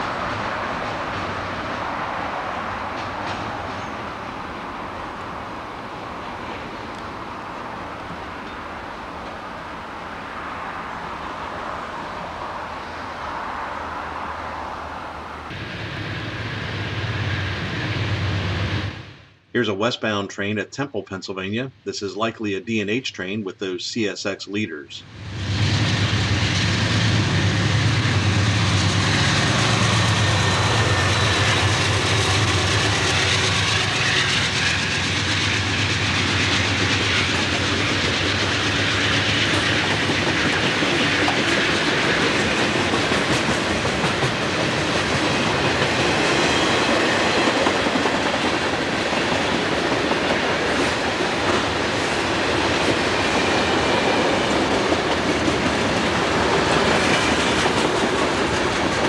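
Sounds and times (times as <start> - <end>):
freight cars rumbling: 0.0 - 59.0
locomotive engines droning: 0.0 - 59.0
train wheels clacking on rail joints: 2.8 - 4.0, 28.9 - 59.0.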